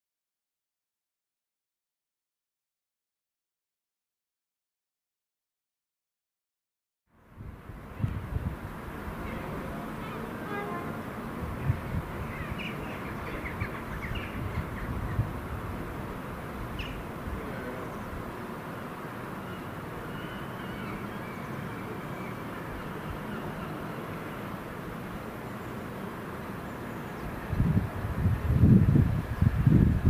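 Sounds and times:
outdoor background hiss: 7.1 - 30.0
birds chirping and cawing: 11.7 - 15.4, 16.6 - 18.2, 19.2 - 24.6.

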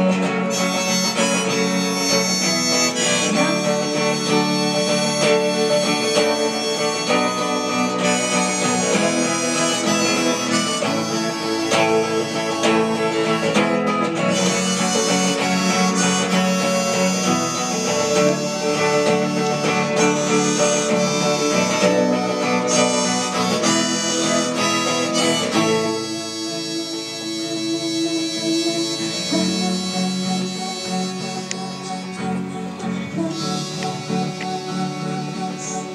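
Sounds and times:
harmonica melody: 0.0 - 35.9
strummed guitar: 0.0 - 35.9.

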